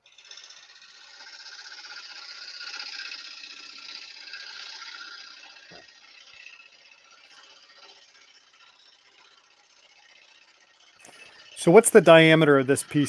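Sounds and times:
lathe tool scraping wood: 0.0 - 13.0.

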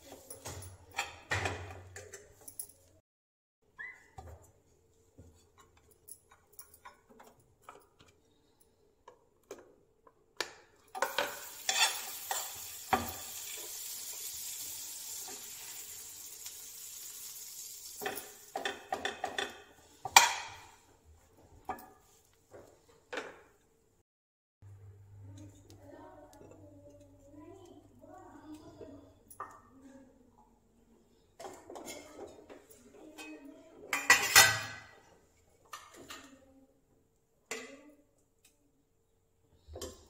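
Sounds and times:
spoon scraping and tapping pan: 11.0 - 14.3
bread sizzling in frying pan: 11.0 - 19.2.

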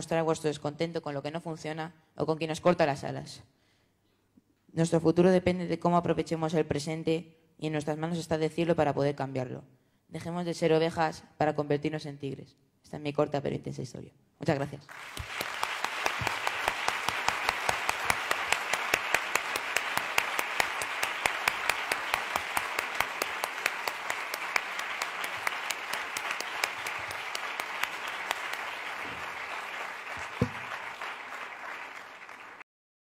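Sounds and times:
audience applauding: 14.9 - 32.6.

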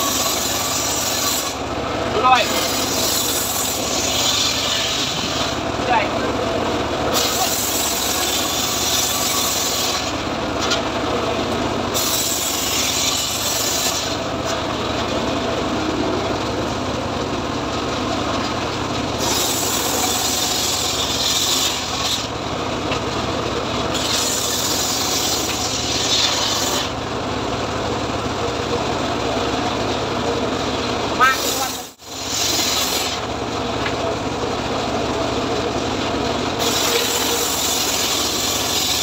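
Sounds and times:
saw blade hissing through wood: 0.0 - 1.6, 2.2 - 5.6, 7.1 - 10.2, 11.9 - 14.3, 19.2 - 22.3, 23.9 - 27.0, 31.2 - 33.3, 36.6 - 39.0
sawmill engine running: 0.0 - 39.0.

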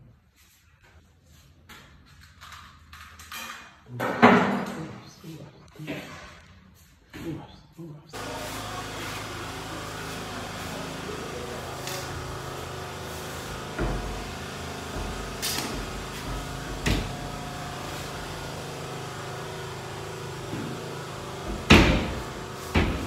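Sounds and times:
steady low hum: 7.6 - 23.0.

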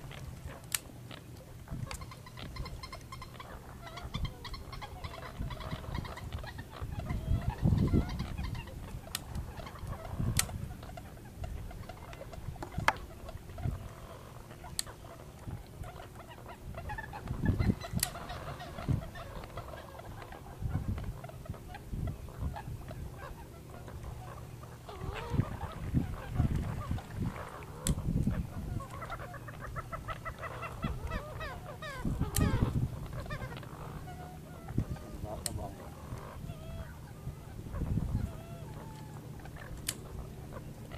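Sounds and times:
fowl clucking calls: 0.0 - 40.9.

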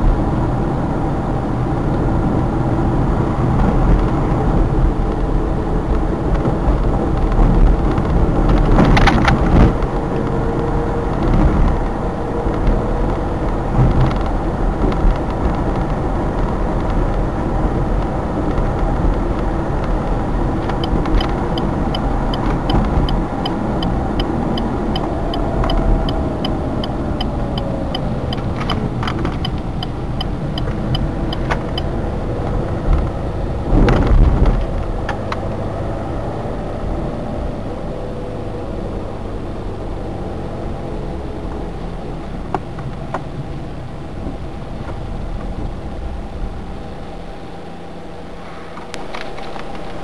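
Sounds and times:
car engine and road noise: 0.0 - 50.0
turn signal ticking: 5.9 - 33.2.

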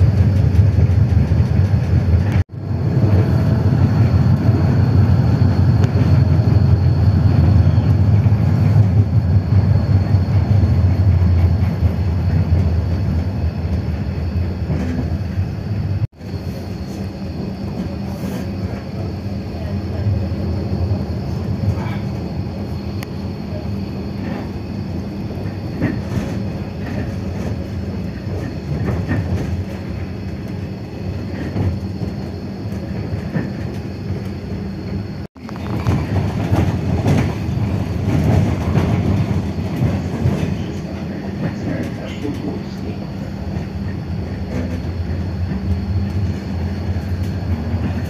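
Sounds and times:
tram hum: 0.0 - 48.0
wheels clattering on rails: 0.0 - 48.0.

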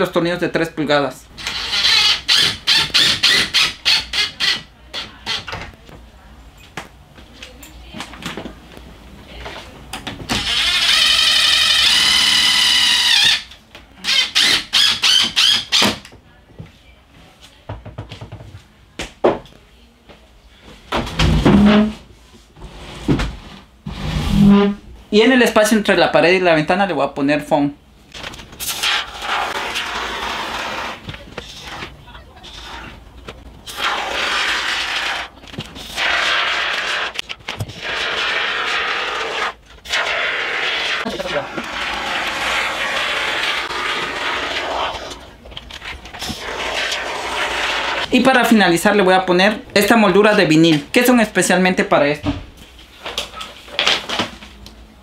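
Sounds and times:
cordless drill driving screws: 1.4 - 4.6, 10.4 - 13.5, 14.1 - 15.8.

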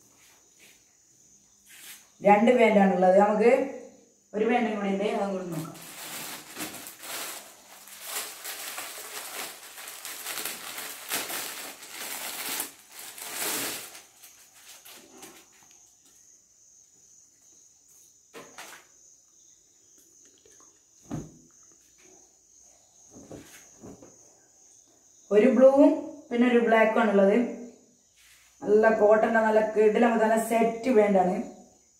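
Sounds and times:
cloth and plastic rustling: 5.5 - 15.8.

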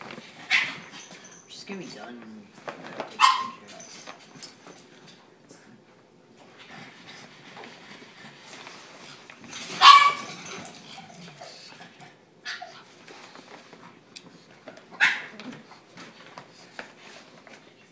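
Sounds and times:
puppy barking: 3.2 - 3.7, 9.8 - 10.4, 15.0 - 15.4.

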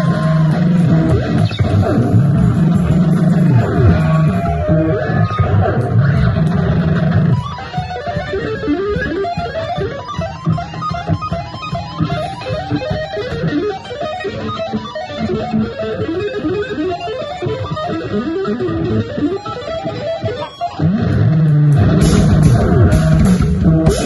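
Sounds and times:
drums keeping time: 0.0 - 24.0
electric guitar playing quick notes: 0.0 - 24.0.

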